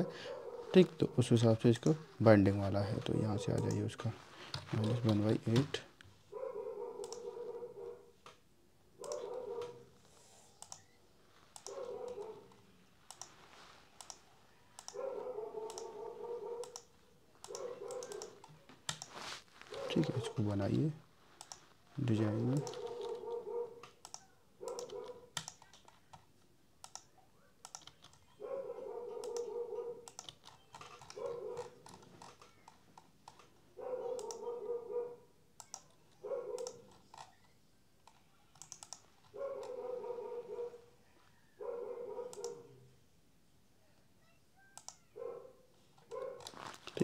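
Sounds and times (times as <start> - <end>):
computer mouse clicks: 3.4 - 3.9, 7.0 - 7.4, 9.0 - 9.8, 10.4 - 13.4, 14.0 - 15.0, 15.6 - 16.0, 16.6 - 19.2, 21.4 - 21.6, 22.6 - 28.3, 29.2 - 33.6, 34.2 - 34.5, 35.6 - 39.8, 42.3 - 42.7, 44.8 - 45.1.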